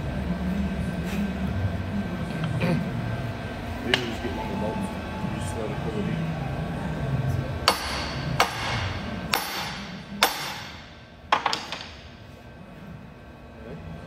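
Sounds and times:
hammer striking metal: 0:07.6 - 0:12.1.

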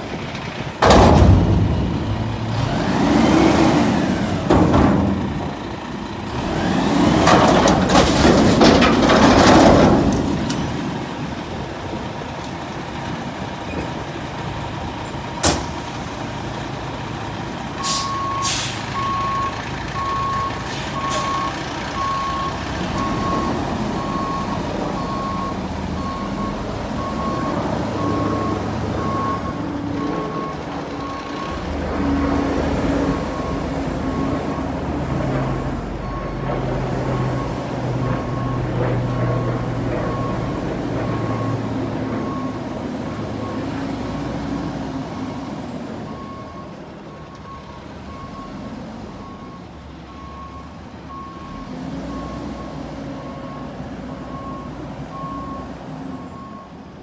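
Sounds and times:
diesel truck engine revving: 0:00.0 - 0:13.6, 0:14.2 - 0:46.5, 0:47.4 - 0:56.6
air brake release: 0:17.8 - 0:19.0, 0:20.6 - 0:21.4
reverse alarm beeping: 0:17.8 - 0:31.6.

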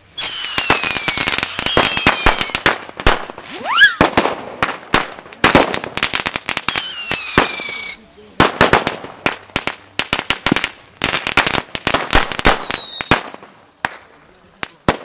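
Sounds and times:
falling firework whistles: 0:00.0 - 0:04.4, 0:06.6 - 0:08.1, 0:12.1 - 0:13.6
firecrackers banging: 0:00.0 - 0:15.0
short rising whistle: 0:00.2 - 0:02.5, 0:03.5 - 0:04.1.

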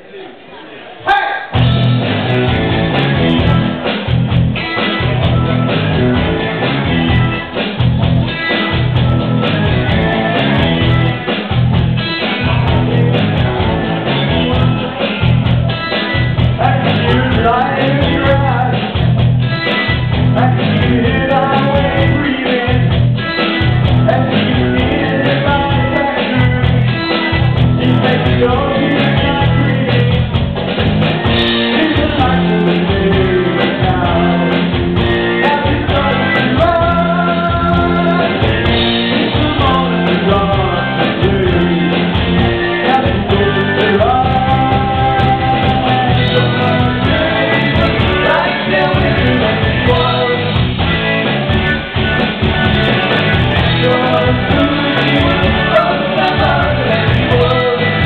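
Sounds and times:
live rock band playing: 0:01.5 - 0:58.0
person singing: 0:08.3 - 0:30.4, 0:31.4 - 0:50.7, 0:53.4 - 0:58.0.

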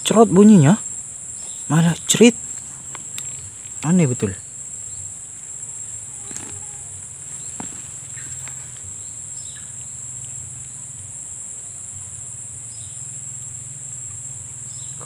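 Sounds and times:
insect chorus: 0:00.0 - 0:15.0
faint clicks: 0:02.5 - 0:03.9.

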